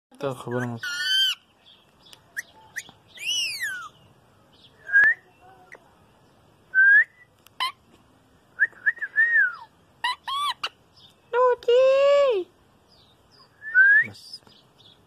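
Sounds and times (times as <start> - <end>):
parakeet whistling: 3.2 - 4.0.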